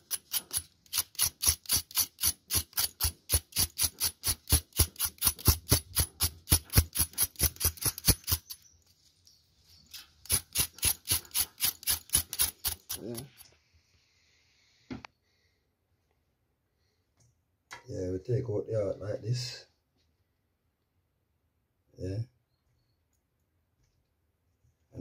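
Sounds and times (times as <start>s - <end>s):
knife scraping yam skin: 0.0s - 8.6s, 9.8s - 13.4s.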